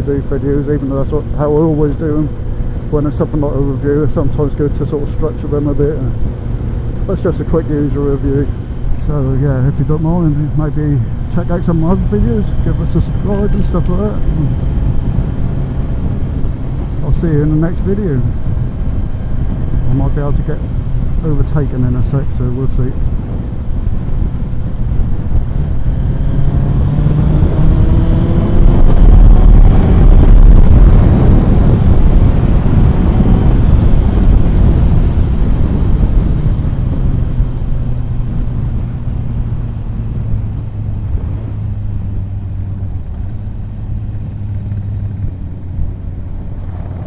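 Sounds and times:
motorcycle engine accelerating: 25.4 - 47.0.

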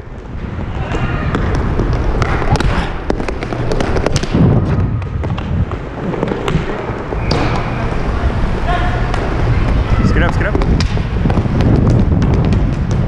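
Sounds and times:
skate wheels rolling: 0.0 - 13.0
sticks and puck clacking: 0.1 - 13.0.

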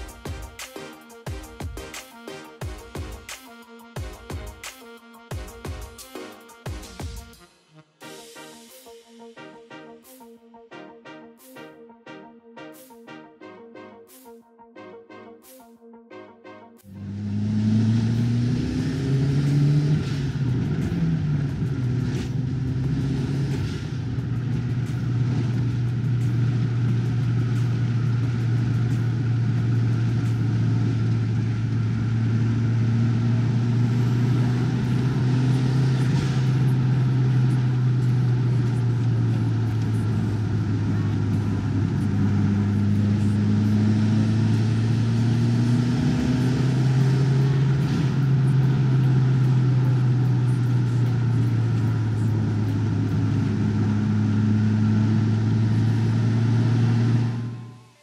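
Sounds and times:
tyre and road noise: 16.9 - 57.4
car engine drone from inside: 16.9 - 58.0.

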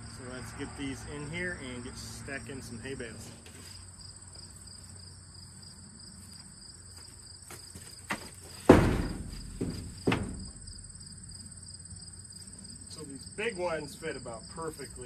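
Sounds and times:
insect chirring: 3.9 - 15.0
wooden pallet knocking on dirt: 8.1 - 10.8.

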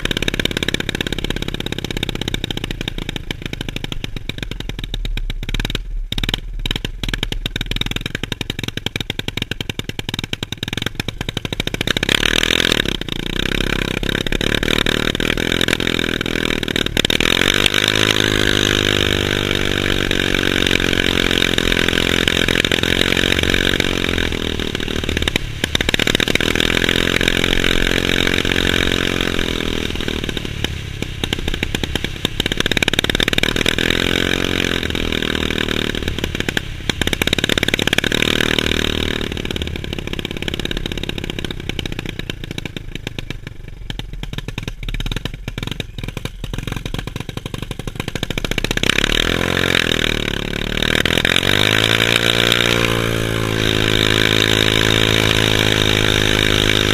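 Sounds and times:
scooter engine revving: 0.0 - 56.9.

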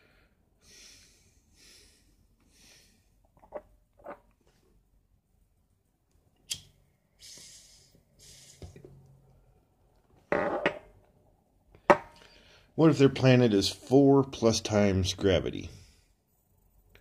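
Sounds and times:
faint breathing: 0.0 - 3.2, 7.0 - 8.9, 12.1 - 12.8.

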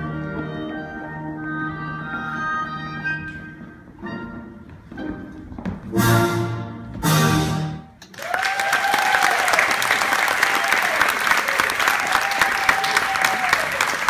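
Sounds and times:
audience applause: 8.0 - 14.0
person cheering: 8.2 - 14.0.

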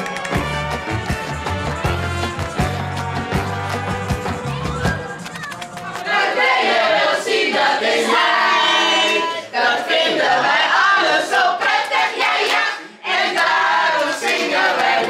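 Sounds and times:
group of people singing: 5.9 - 15.0.

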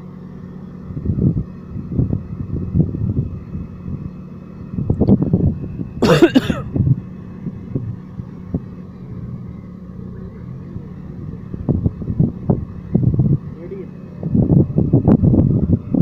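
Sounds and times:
sports car engine idling: 0.0 - 16.0
loud vocal outburst: 6.0 - 6.6.

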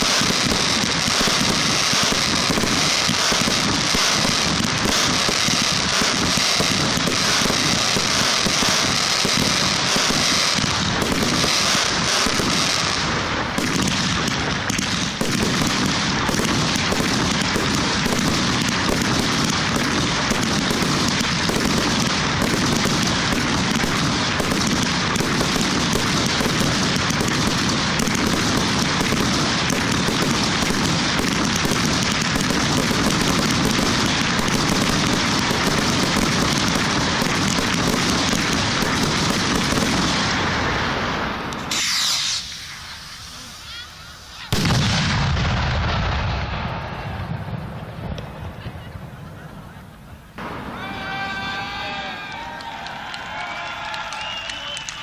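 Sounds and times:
fireworks bursts: 0.0 - 55.0
high hiss: 40.9 - 44.5.

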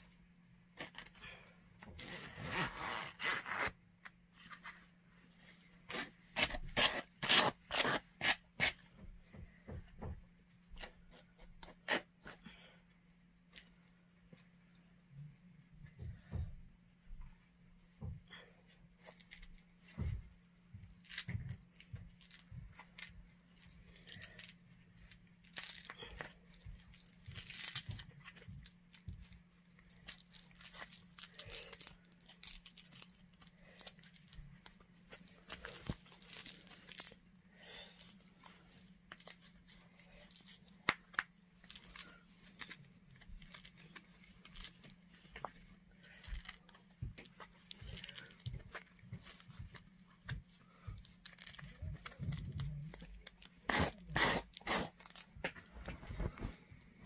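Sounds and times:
zipper rasping: 1.8 - 3.8, 53.6 - 55.3.

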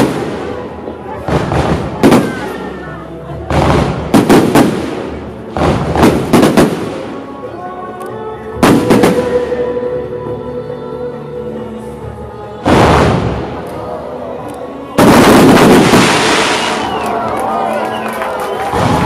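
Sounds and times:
fireworks bursting with sharp bangs: 0.0 - 2.7, 3.5 - 7.3, 8.6 - 9.6, 12.6 - 13.7, 15.0 - 17.1
music playing: 0.0 - 19.0.

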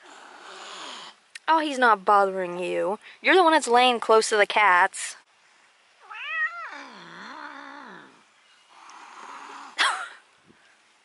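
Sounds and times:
cat growling yowl: 6.0 - 8.2.

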